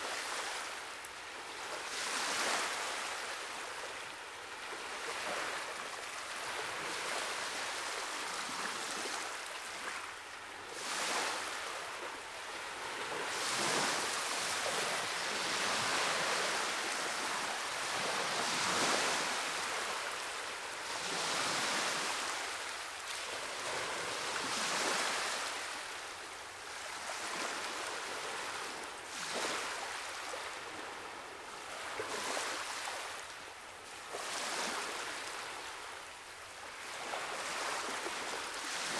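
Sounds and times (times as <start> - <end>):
ocean waves washing in: 10.7 - 26.0.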